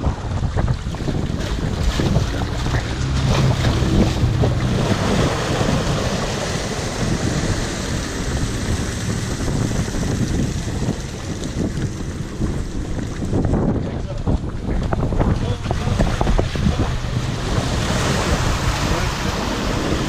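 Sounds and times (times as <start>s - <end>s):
wind buffeting microphone: 0.0s - 20.0s
sea splashing against stone steps: 0.6s - 13.5s.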